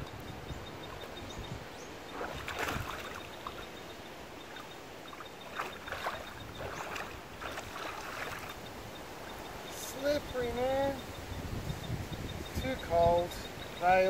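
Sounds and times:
water splashing: 0:02.0 - 0:09.5.

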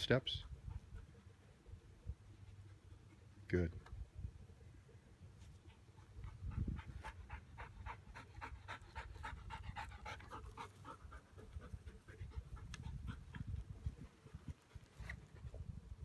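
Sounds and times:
dog panting rapidly: 0:00.4 - 0:01.3, 0:05.7 - 0:14.8.

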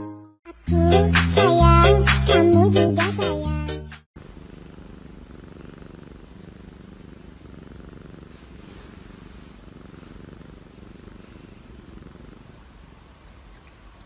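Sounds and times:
cat purring: 0:04.2 - 0:14.0.

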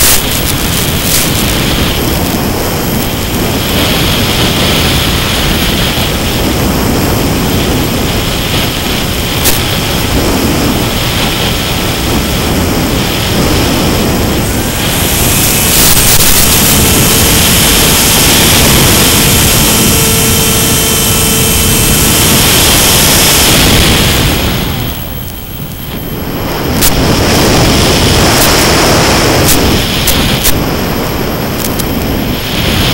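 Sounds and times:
electric motor and propeller whine: 0:00.0 - 0:32.9
wind rushing over microphone: 0:00.0 - 0:32.9.

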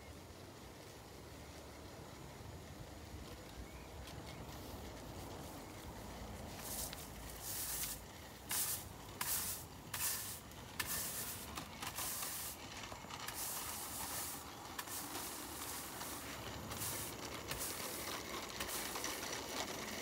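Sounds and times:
swishing brush strokes: 0:04.5 - 0:19.9.

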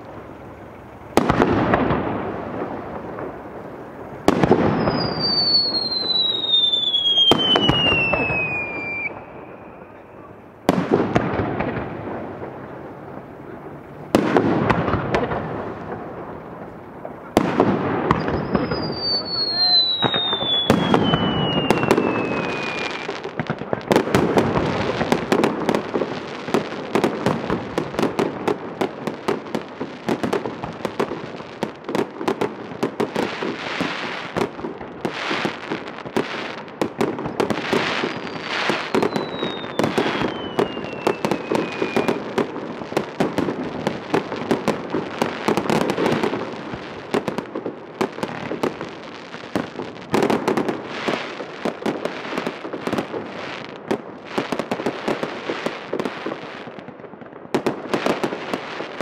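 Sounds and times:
fireworks bangs and crackles: 0:00.0 - 0:59.0
whistle falling in pitch: 0:04.9 - 0:10.2, 0:18.2 - 0:23.0.

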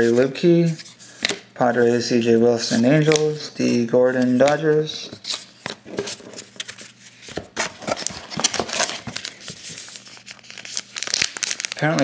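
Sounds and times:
packaging crinkling: 0:07.8 - 0:12.0.

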